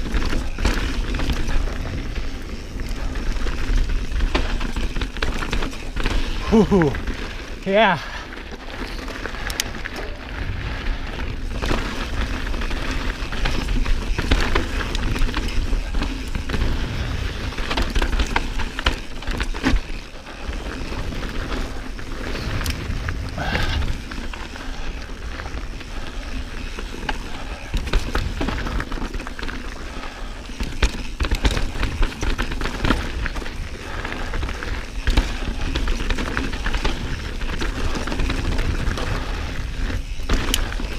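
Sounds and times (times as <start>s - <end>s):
bike knocks and rattles: 0.0s - 40.9s
bike tyre noise: 0.0s - 40.9s
wind buffeting microphone: 21.8s - 26.2s.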